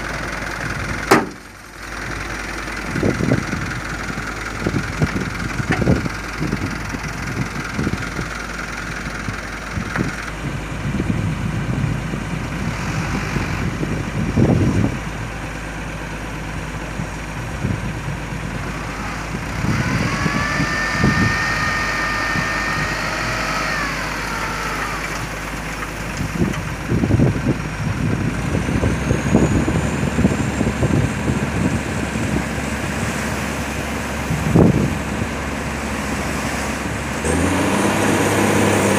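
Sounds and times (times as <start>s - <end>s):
hydraulic hoist whine: 0.0s - 8.2s, 18.6s - 26.9s
truck diesel engine running: 0.0s - 38.9s
knocks: 1.1s - 1.4s.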